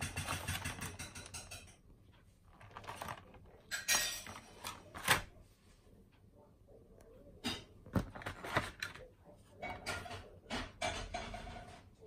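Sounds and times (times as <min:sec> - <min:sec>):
plastic packaging crinkling: 0:02.5 - 0:03.6.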